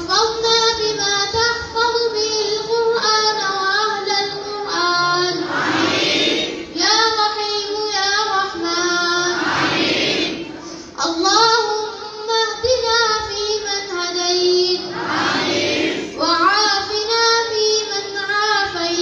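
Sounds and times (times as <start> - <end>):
children singing a chant: 4.2 - 10.8, 14.6 - 16.5.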